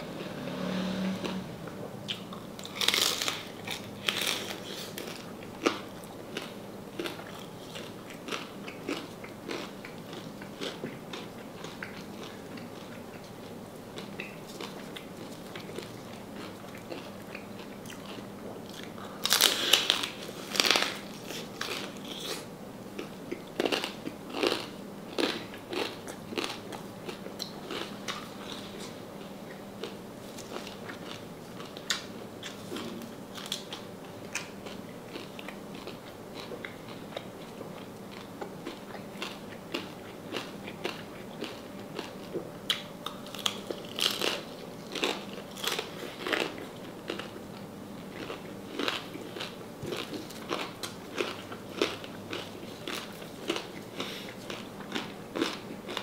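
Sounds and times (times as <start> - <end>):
crunching and chewing crispy food: 0.2 - 56.0.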